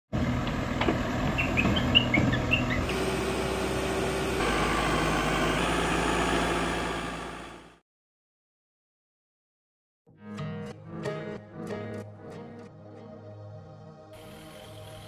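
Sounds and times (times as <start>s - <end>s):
diesel engine running: 0.2s - 7.8s
birds chirping: 1.2s - 2.9s.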